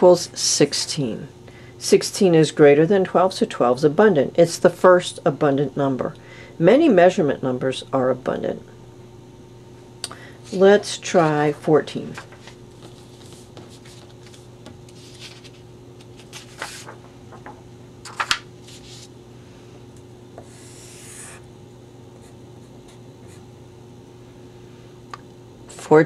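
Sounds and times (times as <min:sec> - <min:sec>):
paper rustling and tapping: 0:12.1 - 0:18.5
marker drawing on paper: 0:20.4 - 0:21.4.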